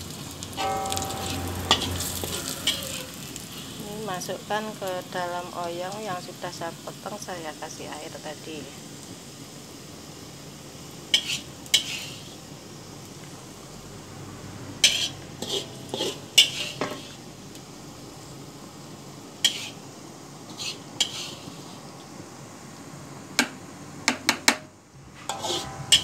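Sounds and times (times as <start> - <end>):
utensil scraping metal wok: 0.0 - 5.6, 11.1 - 12.5, 14.8 - 17.4, 19.4 - 19.8, 20.4 - 21.9, 25.0 - 26.0.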